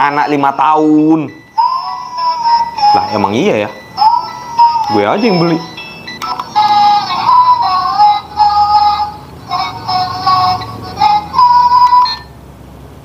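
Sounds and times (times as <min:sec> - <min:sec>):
tinny electronic beeping tune: 0:00.7 - 0:09.1.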